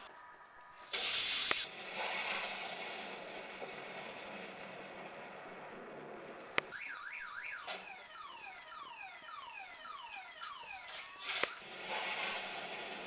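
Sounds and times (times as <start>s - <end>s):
rush of hiss: 0.9s - 3.3s
car alarm warbling: 6.6s - 11.6s.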